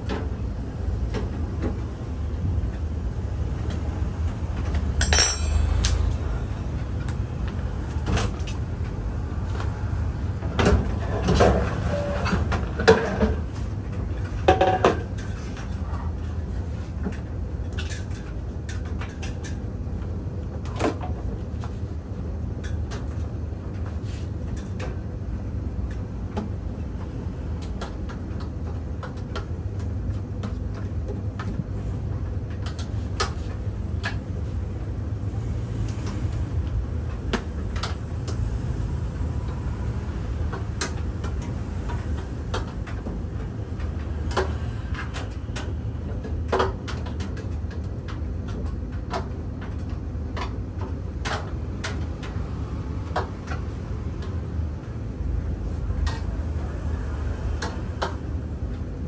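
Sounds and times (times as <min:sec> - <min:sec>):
metal parts clicking and clinking: 0:05.0 - 0:06.2.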